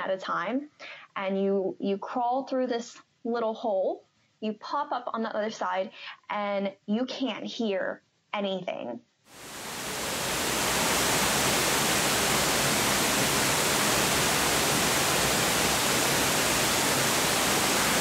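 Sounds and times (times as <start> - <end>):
waterfall roaring: 9.4 - 18.0.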